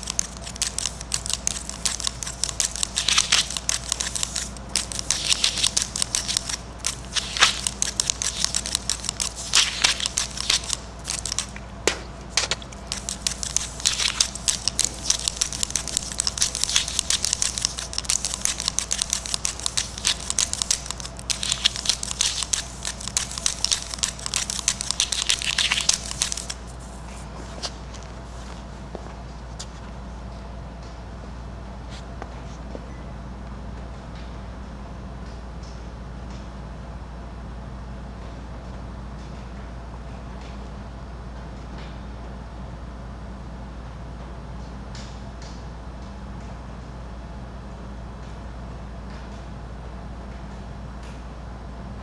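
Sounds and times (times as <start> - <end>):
markers scribbling on paper: 0.0 - 11.6, 12.3 - 27.2.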